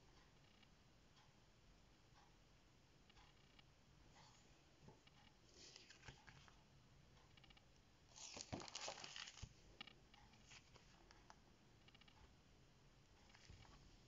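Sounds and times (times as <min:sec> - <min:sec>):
plastic sheet rustling: 0:08.1 - 0:09.6.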